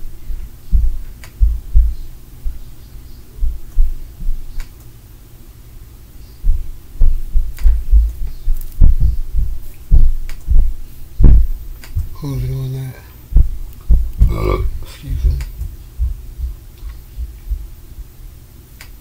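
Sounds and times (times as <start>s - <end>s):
muffled heavy thumps through walls: 0.0s - 2.6s, 3.4s - 4.4s, 6.4s - 12.6s, 13.3s - 17.8s.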